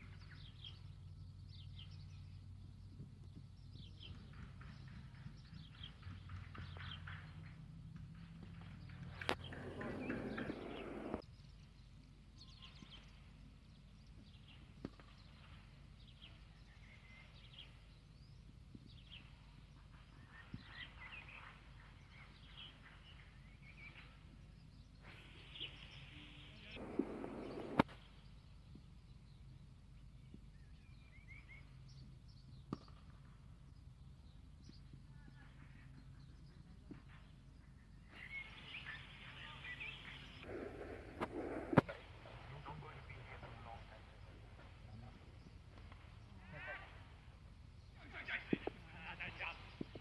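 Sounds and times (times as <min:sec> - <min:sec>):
birds chirping: 0:00.0 - 0:50.0
loud noise burst: 0:26.8 - 0:27.8, 0:40.5 - 0:42.0.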